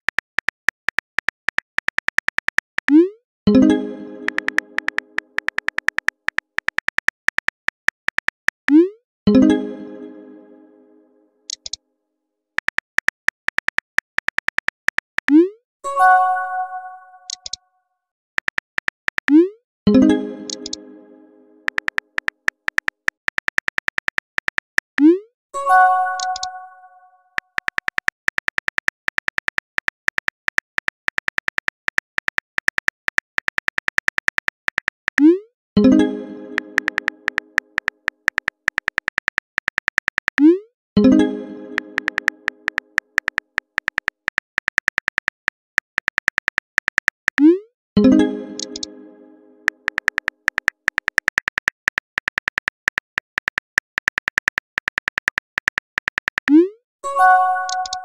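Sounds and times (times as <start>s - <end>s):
phone keyboard typing clicks: 0.0s - 3.0s, 4.2s - 8.8s, 12.6s - 15.4s, 17.3s - 17.6s, 18.4s - 19.4s, 20.5s - 20.8s, 21.6s - 25.1s, 26.2s - 26.5s, 27.3s - 35.3s, 36.5s - 40.5s, 41.7s - 47.5s, 48.6s - 48.9s, 49.7s - 56.6s, 57.6s - 58.0s.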